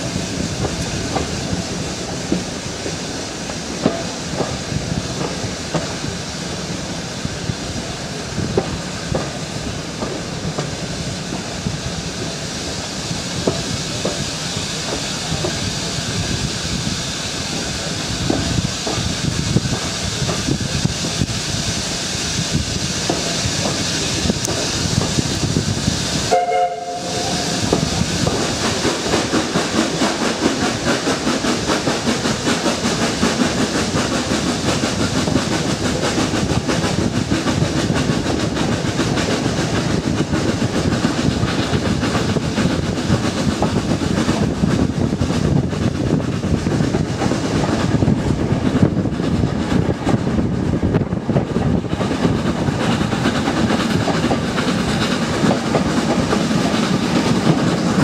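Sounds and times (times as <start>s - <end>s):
train rumbling along: 0.0s - 58.0s
wheels clicking over rail joints: 23.0s - 25.6s, 27.2s - 58.0s.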